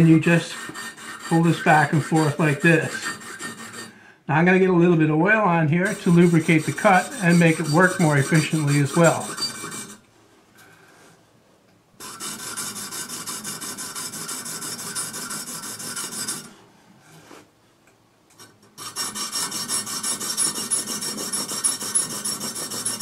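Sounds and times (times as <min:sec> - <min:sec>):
sharpening stick rasping on blade: 0:00.0 - 0:03.9, 0:05.8 - 0:10.0, 0:12.0 - 0:16.5, 0:18.8 - 0:23.0.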